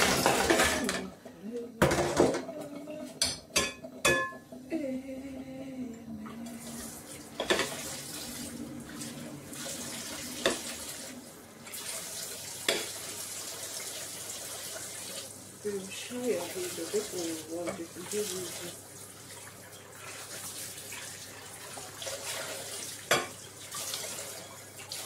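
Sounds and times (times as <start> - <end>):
tap water running: 0.0 - 25.0
ceramic plates clinking: 0.1 - 1.1, 1.8 - 4.5.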